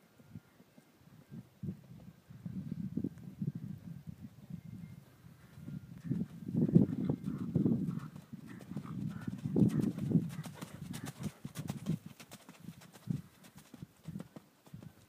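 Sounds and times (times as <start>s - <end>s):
horse hoofbeats on dirt: 5.4s - 15.0s.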